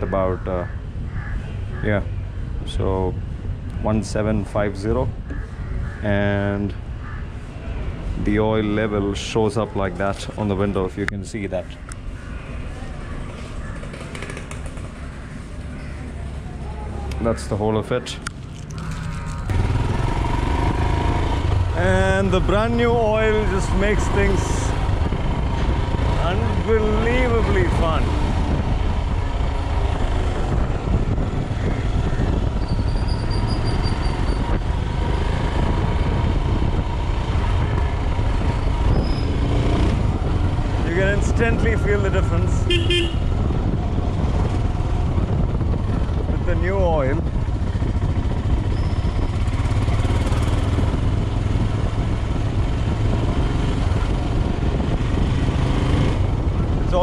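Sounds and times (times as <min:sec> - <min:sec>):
motorcycle engine running: 0:13.6 - 0:16.4, 0:18.8 - 0:41.6, 0:47.2 - 0:57.0
wind rushing past microphone: 0:18.2 - 0:57.0.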